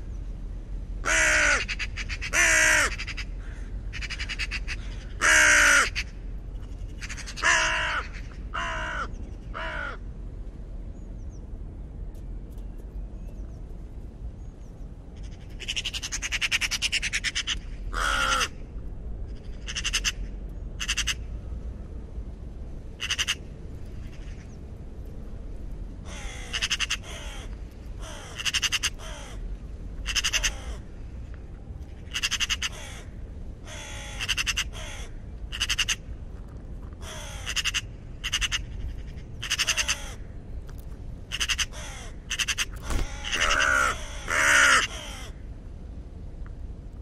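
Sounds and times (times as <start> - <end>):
low steady rumble: 0.0 - 47.0
raven croaking caws: 1.0 - 10.1, 15.2 - 18.6, 19.3 - 21.4, 23.0 - 24.6, 26.0 - 31.0, 31.9 - 36.1, 37.0 - 40.4, 41.3 - 45.5.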